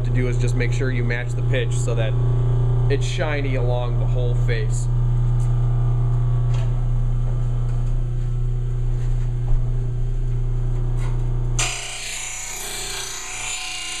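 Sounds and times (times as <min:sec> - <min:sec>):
grinder motor humming: 0:00.0 - 0:14.0
grinding wheel on steel blade: 0:11.6 - 0:14.0.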